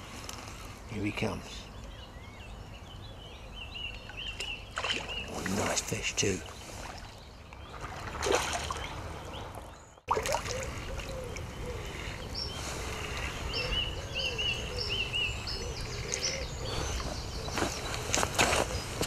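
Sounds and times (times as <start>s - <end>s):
outdoor background noise: 0.0s - 19.0s
sharp splashes or knocks: 4.4s - 5.9s, 6.8s - 10.6s
fish splashing at surface: 7.7s - 8.9s, 10.1s - 11.1s.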